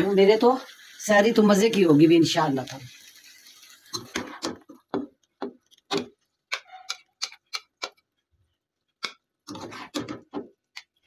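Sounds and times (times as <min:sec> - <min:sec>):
spatula scraping wok: 0:09.5 - 0:10.4.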